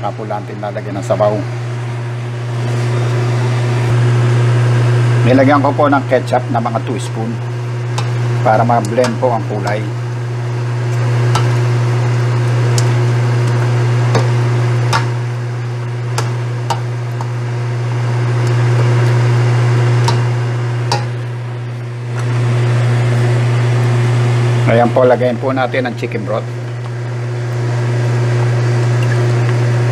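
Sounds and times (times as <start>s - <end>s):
steady low hum: 0.0s - 29.9s
chicken sizzling in pan: 7.5s - 24.4s.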